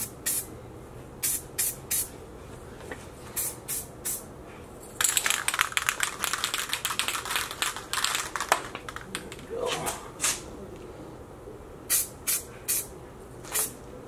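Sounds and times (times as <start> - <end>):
crackling rattle: 5.0 - 9.5.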